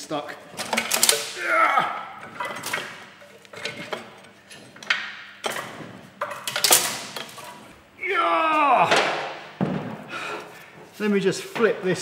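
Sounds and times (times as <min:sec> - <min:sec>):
metal clinks and knocks: 0:02.2 - 0:07.7.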